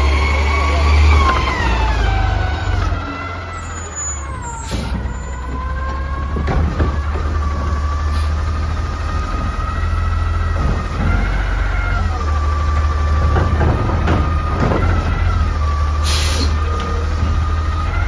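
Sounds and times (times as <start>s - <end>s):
low engine rumble: 0.0s - 18.0s.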